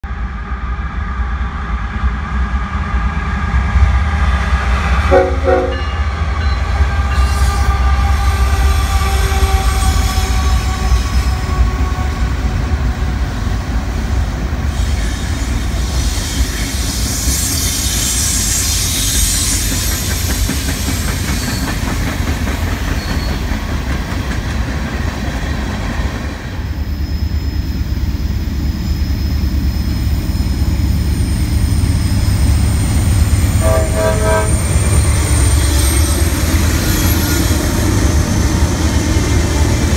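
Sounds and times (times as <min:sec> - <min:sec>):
diesel locomotives running: 0:00.1 - 0:39.9
train horn blast: 0:05.1 - 0:12.9, 0:33.5 - 0:35.2.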